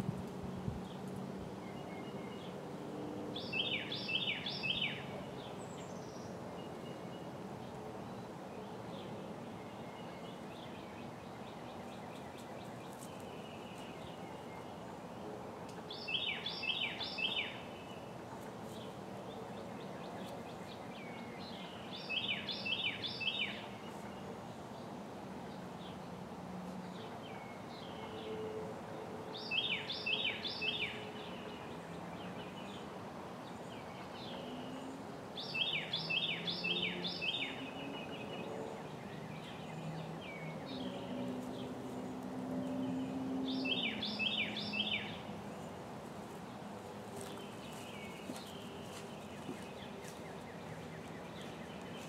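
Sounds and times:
songbird singing: 0:00.0 - 0:26.2, 0:26.8 - 0:52.0
bird chirps: 0:34.2 - 0:41.2, 0:42.6 - 0:45.3.

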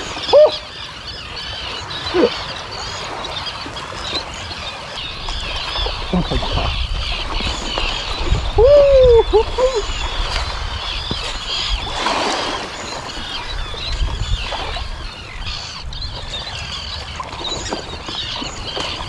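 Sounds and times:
seabirds chirping cries: 0:00.0 - 0:19.0
wind rumble on microphone: 0:02.1 - 0:19.0.

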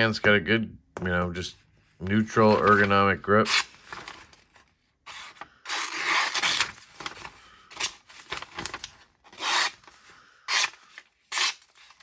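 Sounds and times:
knife slicing paper: 0:10.5 - 0:12.0.

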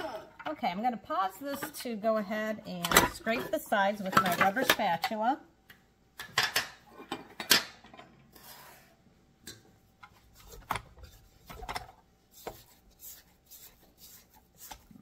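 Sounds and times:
spatula scraping steel bowl: 0:12.3 - 0:15.0.

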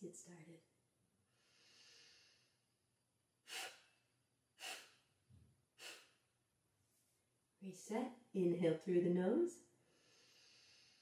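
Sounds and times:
woman inhaling through nose: 0:01.3 - 0:02.6, 0:03.4 - 0:05.2, 0:05.8 - 0:06.3, 0:09.8 - 0:11.0
sharp exhales through nostrils: 0:03.5 - 0:05.2, 0:05.8 - 0:06.3, 0:09.9 - 0:11.0.

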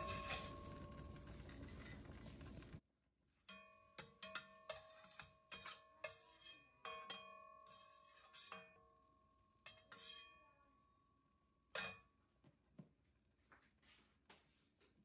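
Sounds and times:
metal turner clinking on steel pan: 0:00.0 - 0:02.8.

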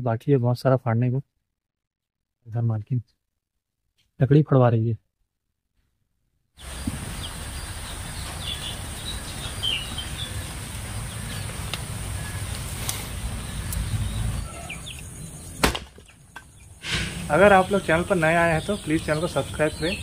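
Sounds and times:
bird chirps: 0:06.6 - 0:20.0.

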